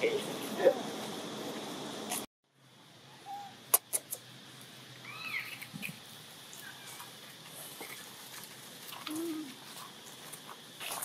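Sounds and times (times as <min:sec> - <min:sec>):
monkeys squeaking and chirping: 0:05.0 - 0:06.0.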